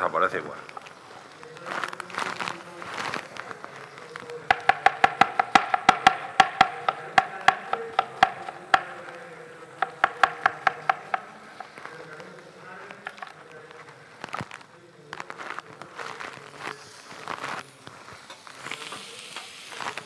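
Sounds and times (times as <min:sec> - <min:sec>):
knife chopping on cutting board: 0:04.5 - 0:09.2, 0:09.8 - 0:11.3.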